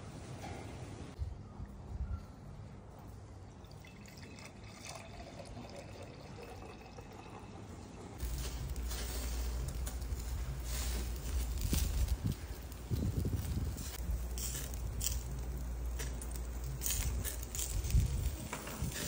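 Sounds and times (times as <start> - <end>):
wine pouring into a glass: 3.6 - 7.6
low rumble with hiss: 8.0 - 19.0.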